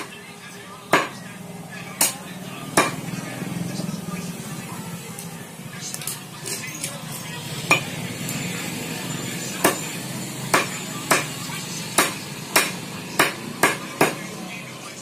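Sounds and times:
blade chopping on wooden block: 0:02.8 - 0:03.0, 0:09.6 - 0:09.8, 0:10.5 - 0:11.3, 0:12.0 - 0:14.2.

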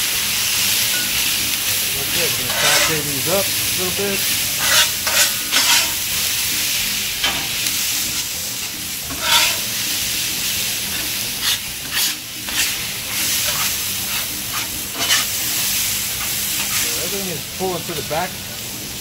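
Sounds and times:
potatoes sizzling in oil: 0:00.0 - 0:19.0
metal spatulas scraping steel: 0:02.1 - 0:03.1, 0:04.6 - 0:06.0, 0:09.1 - 0:09.7, 0:10.9 - 0:15.3.

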